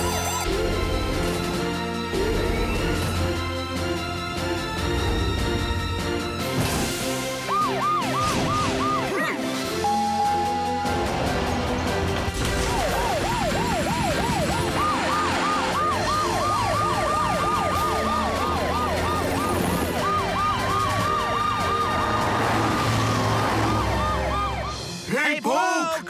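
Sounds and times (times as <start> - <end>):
cartoon sirens wailing: 0.0 - 0.8, 7.2 - 11.4, 12.6 - 25.0.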